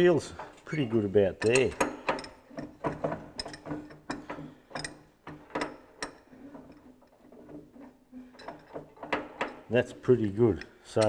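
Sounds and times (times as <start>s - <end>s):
metallic clicks and clunks: 1.3s - 9.8s.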